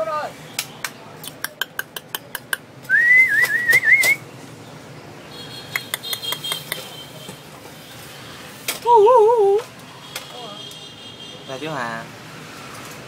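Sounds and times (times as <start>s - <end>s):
person whistling: 2.9s - 4.2s
sharp clicks: 5.7s - 6.9s.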